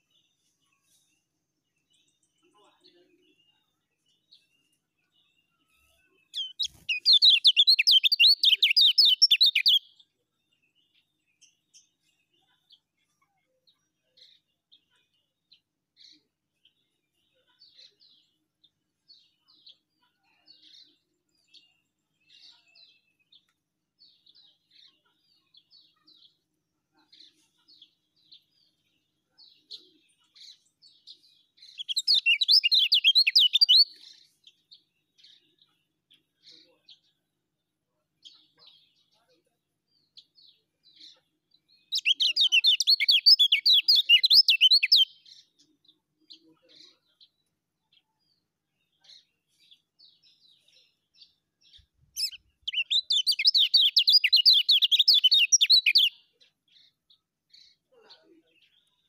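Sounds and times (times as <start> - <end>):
bird rapid twittering song: 0.0 - 13.1, 27.1 - 37.3, 40.0 - 57.9.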